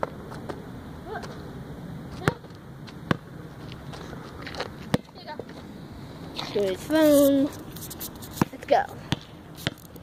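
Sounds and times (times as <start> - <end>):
basketball hitting hard surfaces: 4.9 - 5.2.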